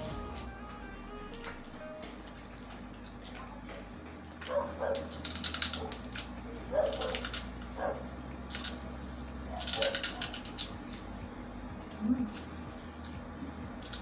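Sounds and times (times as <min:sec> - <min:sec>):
person chewing food: 0:11.8 - 0:14.0.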